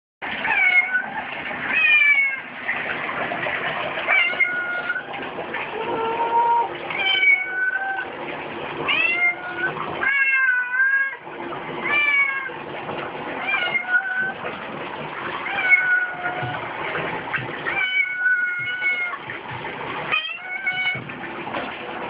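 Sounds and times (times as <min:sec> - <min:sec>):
cat meowing: 0:05.8 - 0:08.1.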